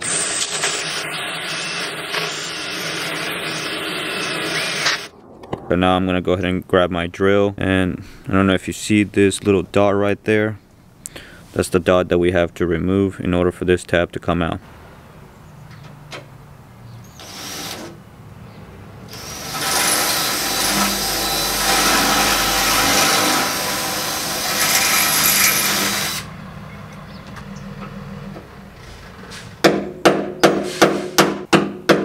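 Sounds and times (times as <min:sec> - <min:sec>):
cordless drill boring into steel: 0:17.2 - 0:17.9, 0:19.1 - 0:26.3.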